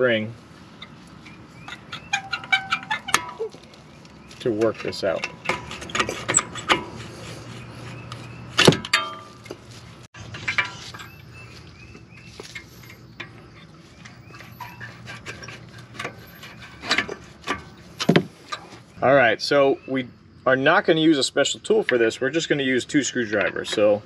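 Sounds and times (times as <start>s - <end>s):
sharp metal clank: 8.6s - 9.4s.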